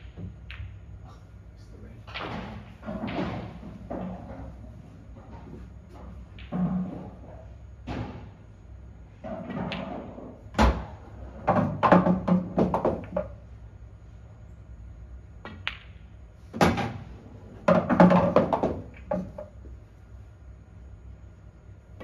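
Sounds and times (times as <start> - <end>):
pool balls clacking: 2.0 - 8.4, 9.2 - 13.4, 15.4 - 19.8.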